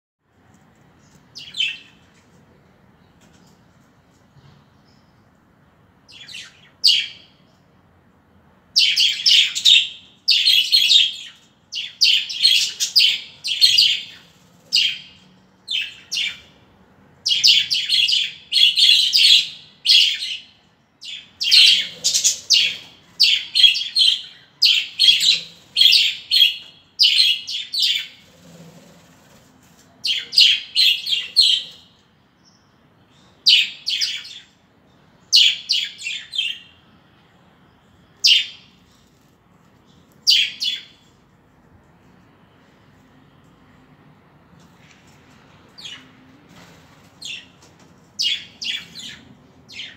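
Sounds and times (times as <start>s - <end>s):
budgerigars chattering and chirping: 21.1s - 28.5s, 30.1s - 31.9s.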